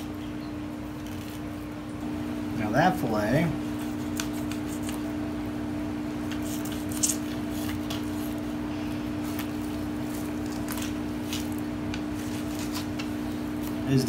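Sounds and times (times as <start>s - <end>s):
steady low hum: 0.0s - 14.0s
knife scraping on fish: 3.7s - 5.2s, 6.2s - 8.5s.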